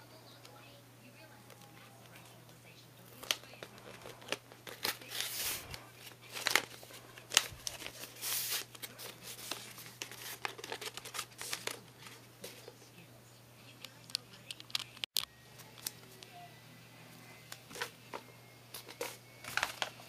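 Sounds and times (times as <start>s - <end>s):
paper crinkling and rustling: 3.1s - 12.7s, 17.7s - 20.0s.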